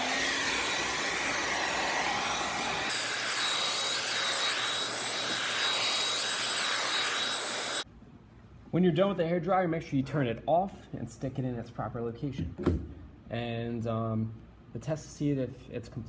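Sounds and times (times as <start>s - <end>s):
hair dryer blowing: 0.0s - 7.8s.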